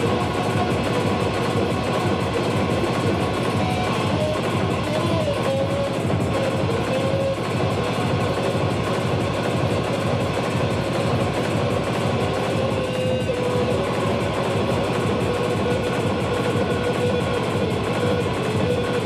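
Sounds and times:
electric guitar drone: 0.0 - 19.0
fast pulsing: 0.0 - 19.0
held tone: 0.0 - 19.0.

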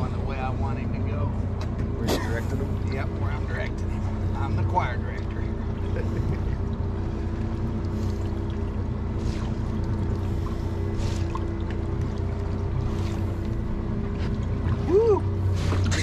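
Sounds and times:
boat engine humming: 0.0 - 16.0.

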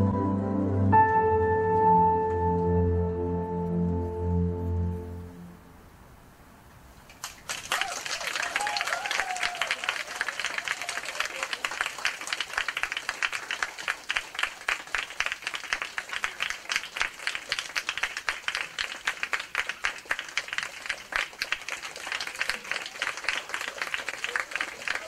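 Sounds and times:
audience applauding: 7.1 - 25.0.

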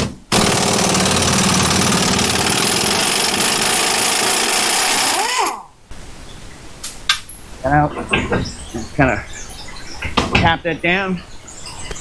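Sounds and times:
impact wrench hammering: 0.0 - 5.2.

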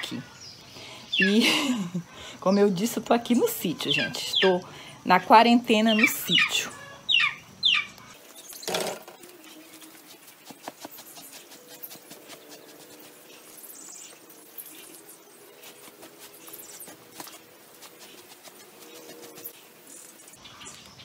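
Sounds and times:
faint birds: 0.0 - 21.0
stiff brush swishing on rug: 9.4 - 20.3.

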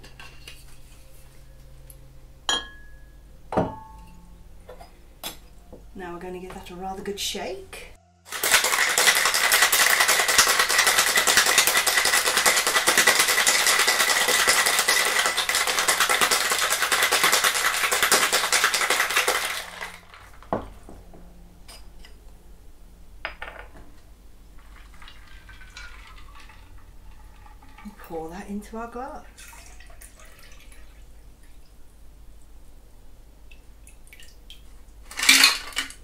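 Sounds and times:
ice rattling in cocktail shaker: 8.3 - 20.5, 24.6 - 28.4, 35.1 - 36.0.

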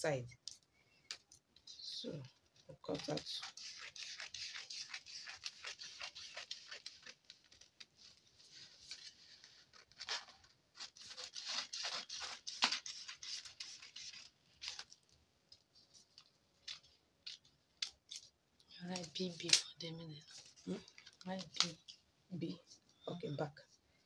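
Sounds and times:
paper rustling: 2.4 - 19.5
scissors cutting paper: 2.9 - 7.9, 9.8 - 14.9.

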